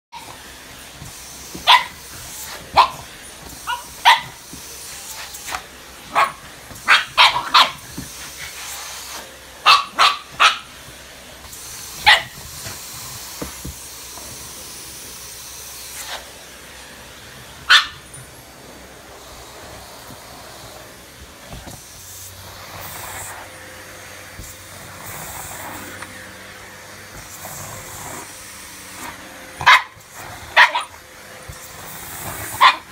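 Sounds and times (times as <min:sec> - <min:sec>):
vacuum cleaner running: 0:00.1 - 0:32.9
dog barking: 0:01.6 - 0:02.0, 0:02.7 - 0:04.4, 0:06.1 - 0:07.8, 0:09.6 - 0:10.7, 0:12.0 - 0:12.4, 0:17.7 - 0:18.0, 0:29.6 - 0:31.0, 0:32.6 - 0:32.9.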